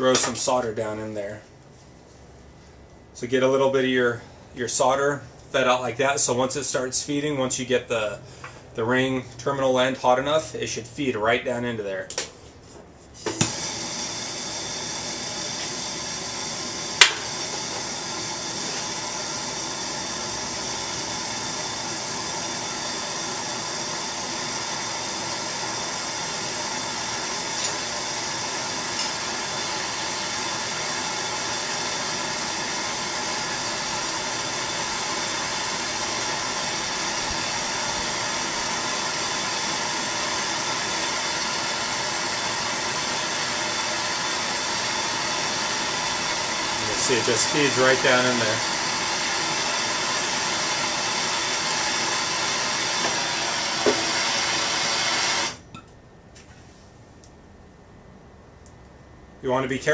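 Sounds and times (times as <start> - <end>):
gas torch hissing: 13.2 - 55.7.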